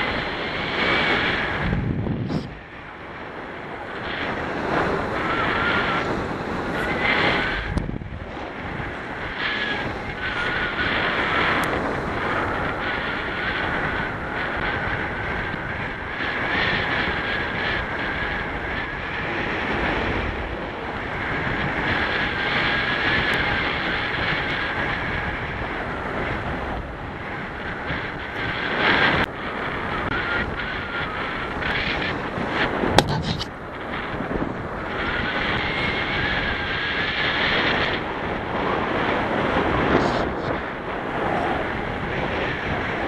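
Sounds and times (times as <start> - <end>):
thin steady whine: 0.0 - 43.0
wind rushing over microphone: 0.0 - 43.0.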